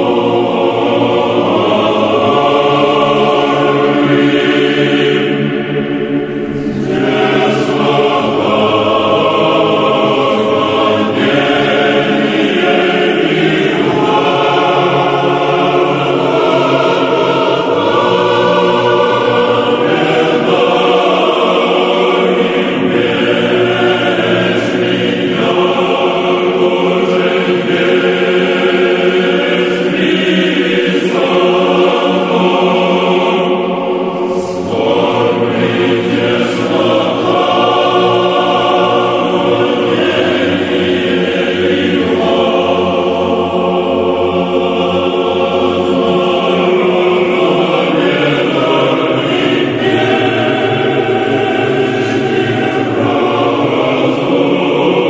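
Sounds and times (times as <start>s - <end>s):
choir singing slow chant: 0.0s - 55.0s.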